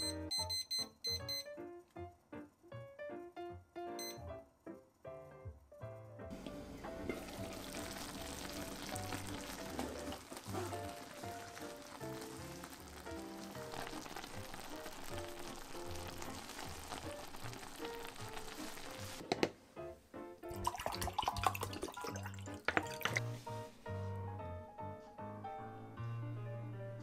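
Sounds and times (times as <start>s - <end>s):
background music: 0.0s - 27.0s
stew sizzling and bubbling: 6.3s - 19.4s, 20.6s - 23.6s.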